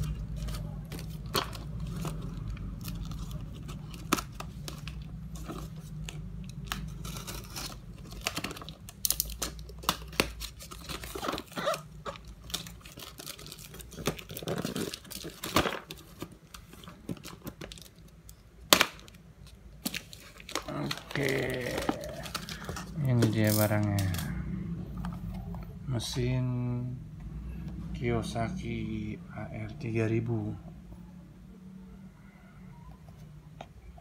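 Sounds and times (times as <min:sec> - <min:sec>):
tape tearing and crinkling: 0:00.0 - 0:18.1, 0:18.7 - 0:24.3.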